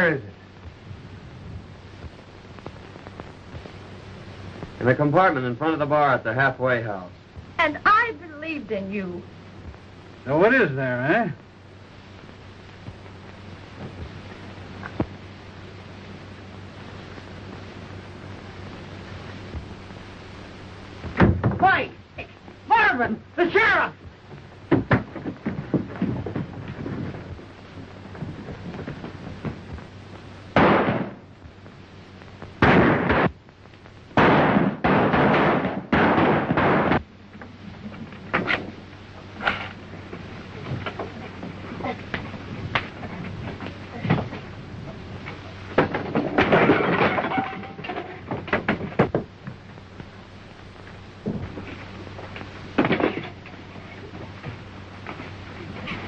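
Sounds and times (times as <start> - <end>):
film soundtrack hum and hiss: 0.0 - 56.0
bodies crashing against wooden crates: 21.1 - 21.7, 24.7 - 27.4, 45.8 - 49.3
gunshots: 30.6 - 31.3, 32.6 - 33.4, 34.2 - 37.0.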